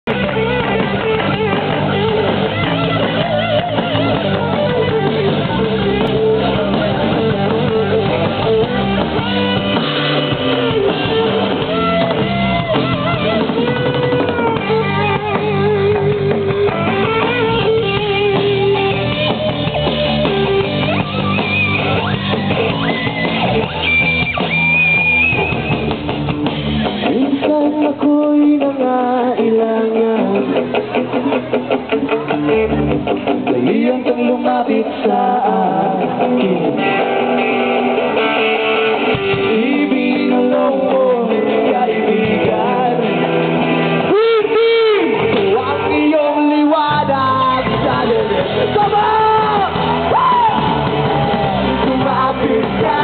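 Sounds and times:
live rock band: 0.0s - 53.0s
man singing: 27.0s - 30.8s, 33.4s - 37.2s, 39.3s - 49.9s, 51.4s - 53.0s.

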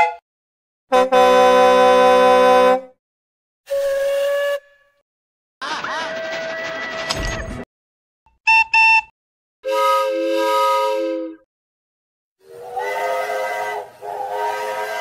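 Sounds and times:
steam locomotive whistle blasts: 0.0s - 0.2s, 3.7s - 5.0s, 9.6s - 11.4s, 12.4s - 15.0s.

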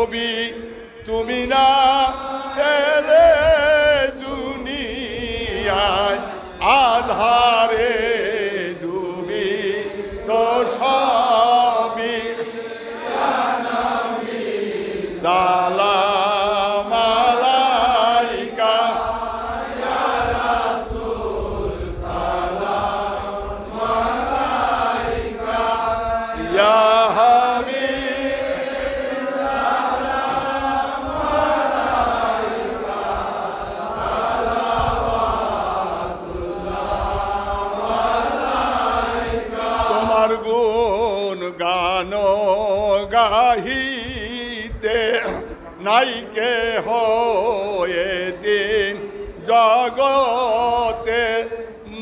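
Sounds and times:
devotional song through microphone: 0.0s - 52.0s.

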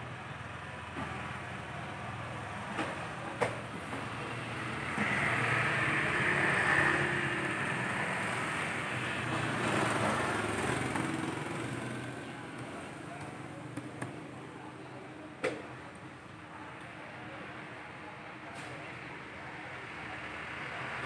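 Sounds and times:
passing motor vehicle engine: 2.4s - 14.6s.

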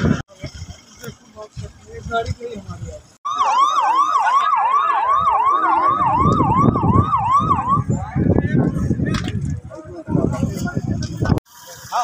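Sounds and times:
siren in fast yelp: 3.3s - 8.0s.

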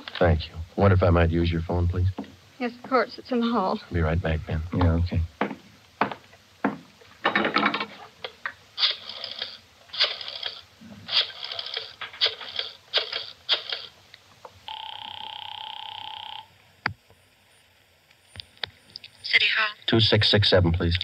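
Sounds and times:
telephone ringing tone: 14.6s - 16.6s.

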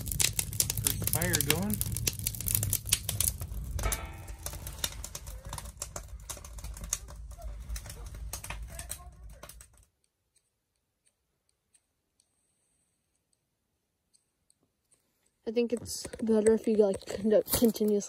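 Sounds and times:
wood fire crackling: 0.0s - 10.4s, 14.1s - 18.0s.

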